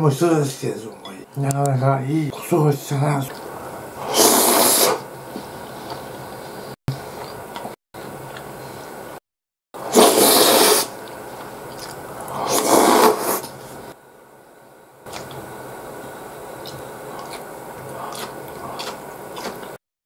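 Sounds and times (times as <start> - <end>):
slurping stew off a spoon: 4.0 - 5.0, 9.8 - 11.2, 11.8 - 13.7.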